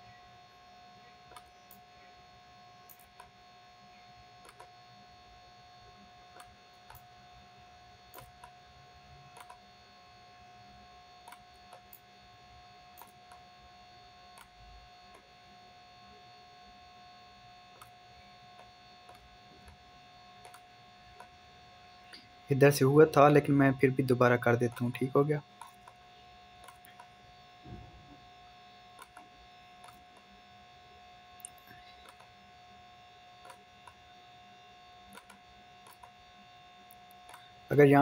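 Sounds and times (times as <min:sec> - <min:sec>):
electrical hum: 0:00.0 - 0:38.0.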